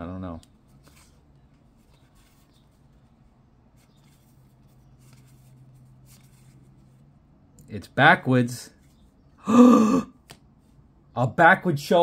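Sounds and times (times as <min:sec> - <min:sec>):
cards rustling and swiping: 0:00.4 - 0:07.1.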